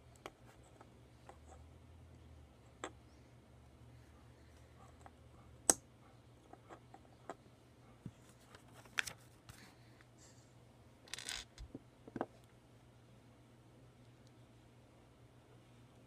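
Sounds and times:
plastic pieces clicking: 0:11.1 - 0:11.7.

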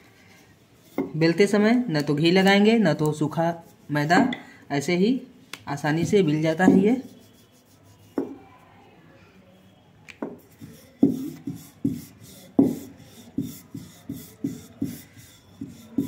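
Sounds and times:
rolling pin rolling dough: 0:00.8 - 0:01.5, 0:06.0 - 0:08.4, 0:10.2 - 0:16.0.

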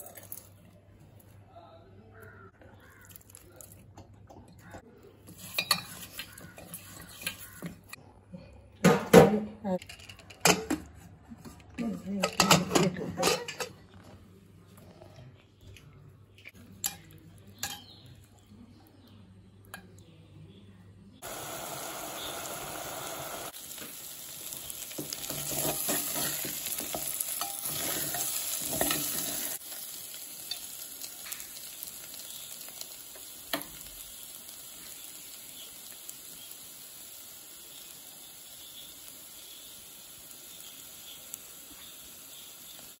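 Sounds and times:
steel spoon scraping a pot: 0:05.4 - 0:07.8, 0:25.2 - 0:29.6
meat sizzling in a pot: 0:21.2 - 0:43.0.

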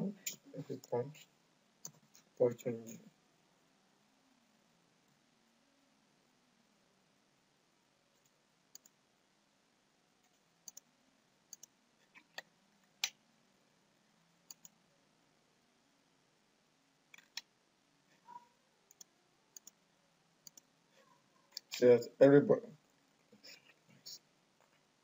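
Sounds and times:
computer mouse clicking: 0:08.2 - 0:09.0, 0:10.2 - 0:10.9, 0:11.5 - 0:13.2, 0:14.5 - 0:14.8, 0:17.1 - 0:17.5, 0:18.9 - 0:19.8, 0:20.4 - 0:20.7.

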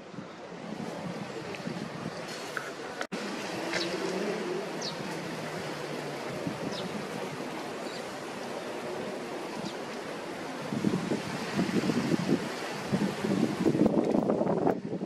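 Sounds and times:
steady rushing noise: 0:00.0 - 0:15.0
sparrows chirping: 0:03.5 - 0:10.0.

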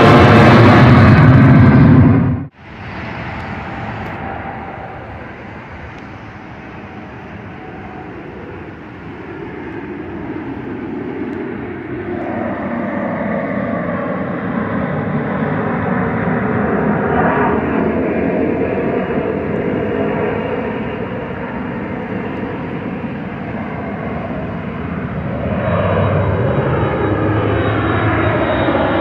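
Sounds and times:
jet airliner engine rumble: 0:00.0 - 0:29.0.

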